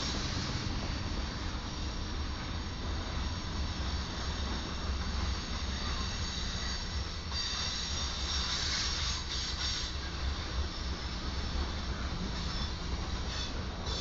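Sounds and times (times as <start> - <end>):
freight train wheels rumbling: 0.0 - 14.0
high wheel squeal: 5.3 - 11.4, 12.2 - 14.0.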